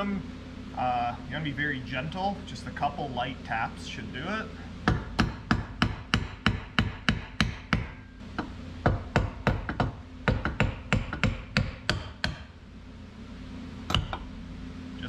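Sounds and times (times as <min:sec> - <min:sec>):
hammer tapping metal housing: 0:04.9 - 0:12.5, 0:13.9 - 0:14.3.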